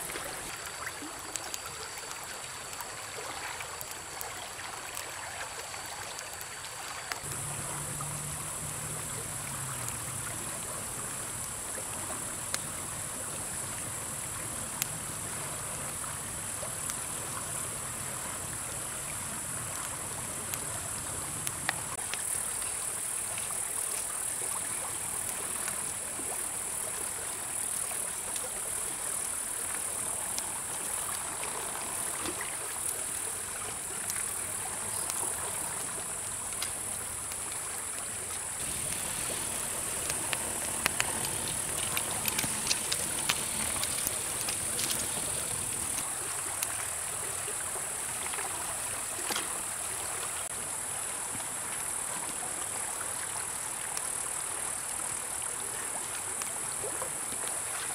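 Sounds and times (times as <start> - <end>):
campfire crackles: 0.0 - 50.6
high insect drone: 5.8 - 50.9.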